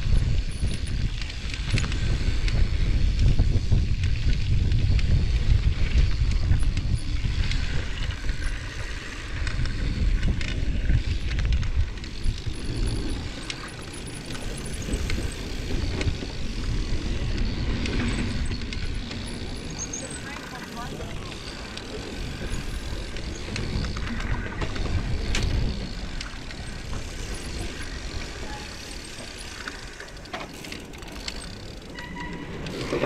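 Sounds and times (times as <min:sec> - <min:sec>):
bike clicks and rattles: 0:00.0 - 0:33.0
wind buffeting microphone: 0:00.0 - 0:33.0
tyres rolling over dirt: 0:07.5 - 0:33.0.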